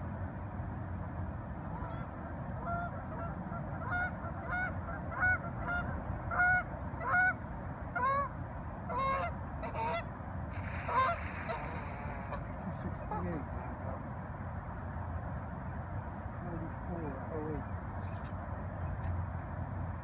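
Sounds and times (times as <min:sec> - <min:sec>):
steady low rumble: 0:00.0 - 0:20.0
goose honking: 0:01.7 - 0:07.4, 0:08.0 - 0:08.3, 0:08.9 - 0:14.0.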